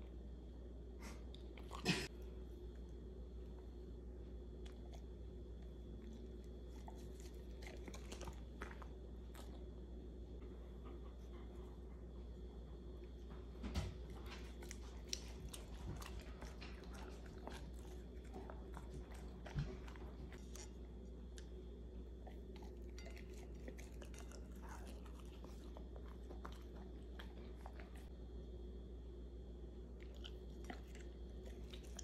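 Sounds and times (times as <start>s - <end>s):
dog chewing wetly: 4.5s - 9.8s, 12.9s - 28.1s, 30.0s - 32.0s.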